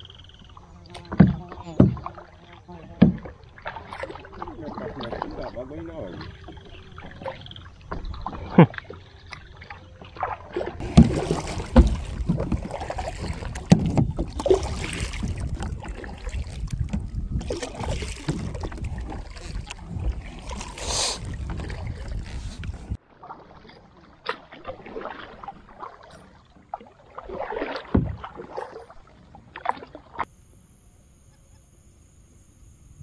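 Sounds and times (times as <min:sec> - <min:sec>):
water splashing along hull: 0:00.0 - 0:30.6
paddle blades dipping in water: 0:00.5 - 0:30.3
paddle knocks: 0:00.9 - 0:02.2, 0:02.9 - 0:04.2, 0:10.1 - 0:23.0, 0:27.2 - 0:29.9
wind rumble on microphone: 0:10.8 - 0:23.0.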